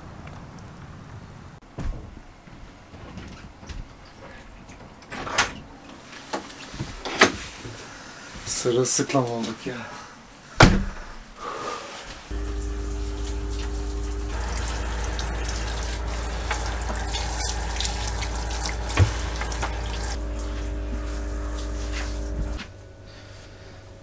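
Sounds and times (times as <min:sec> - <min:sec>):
shower head spraying water: 0:12.3 - 0:22.7
electric water pump humming: 0:12.3 - 0:24.0.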